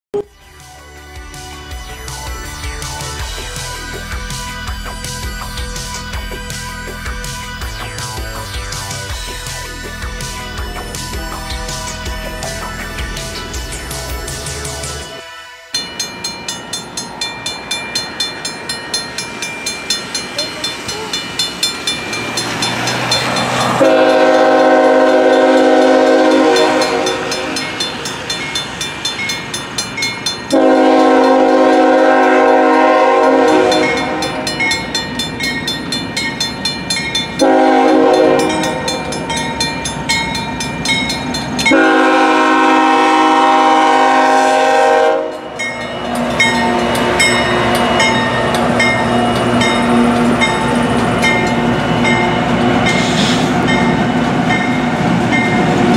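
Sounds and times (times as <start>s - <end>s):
crossing bell ringing: 1.7s - 55.9s
locomotive horn blasts: 23.8s - 27.8s, 30.5s - 34.5s, 37.4s - 39.1s, 41.7s - 45.6s.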